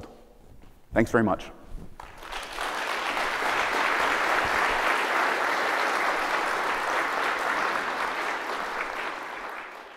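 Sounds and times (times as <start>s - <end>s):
audience applauding: 2.0s - 9.9s.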